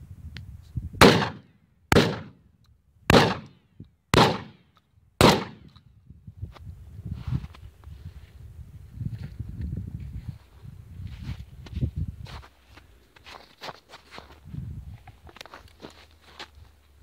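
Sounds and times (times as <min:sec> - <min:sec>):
shotgun blasts with echo: 0:01.0 - 0:02.4, 0:03.1 - 0:03.6, 0:04.2 - 0:05.7.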